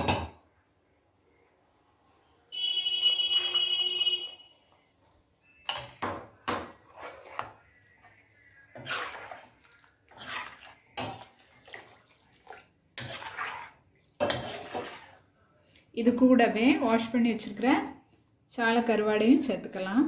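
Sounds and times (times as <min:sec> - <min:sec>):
ladle stirring liquid in a metal pan: 0:05.4 - 0:15.5.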